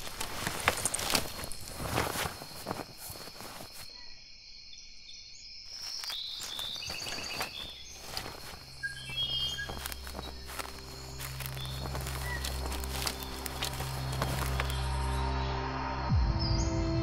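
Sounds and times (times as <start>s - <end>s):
footsteps on forest floor: 0.0s - 4.0s, 5.7s - 15.2s
insects chirping: 0.0s - 16.1s.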